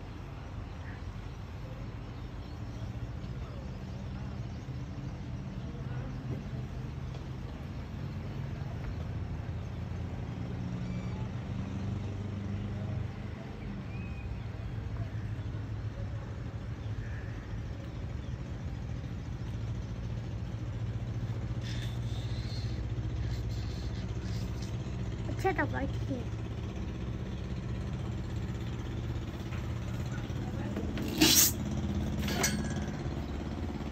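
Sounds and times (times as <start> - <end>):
city traffic rumble: 0.0 - 33.9
faint engine hum: 0.0 - 33.9
brief hiss: 31.0 - 31.6.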